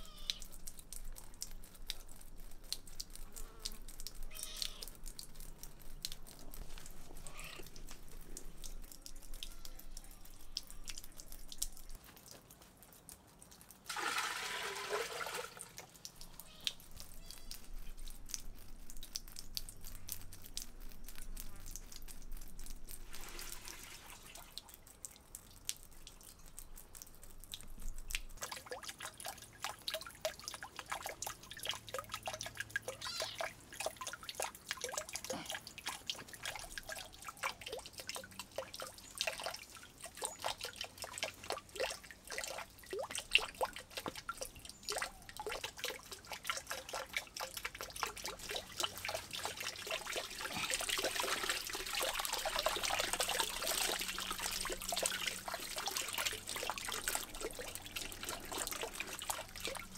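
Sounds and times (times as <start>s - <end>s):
water dripping into pond: 0.0s - 59.9s
water pouring splash: 13.8s - 17.2s, 22.0s - 25.7s, 27.5s - 59.9s.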